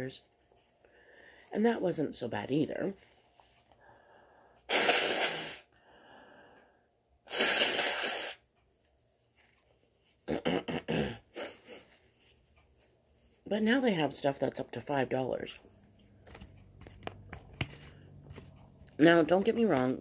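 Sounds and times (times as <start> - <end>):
person blowing nose: 4.7 - 5.7, 7.3 - 8.5.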